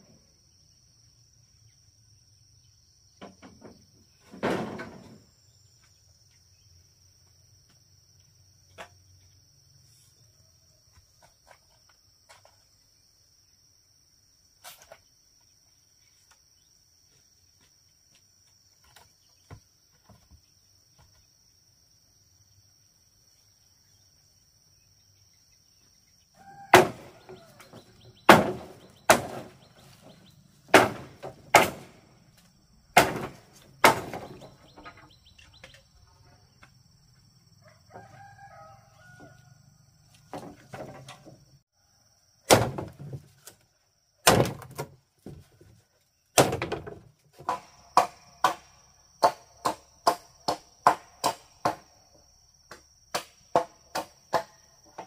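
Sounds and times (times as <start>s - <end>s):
high insect whine: 0.0s - 42.6s.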